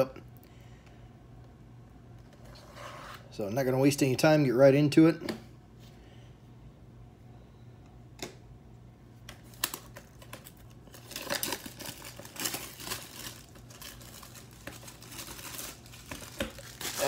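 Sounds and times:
cellophane crinkling and crackling: 9.3 - 17.0.

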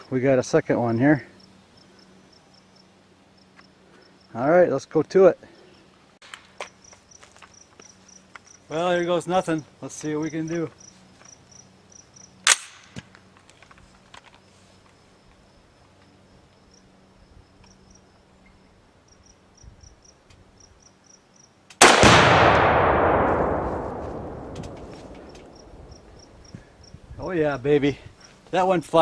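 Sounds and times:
gunshot: 21.8 - 26.1
loud explosion boom: 21.8 - 26.4
sharp click: 24.4 - 25.7.

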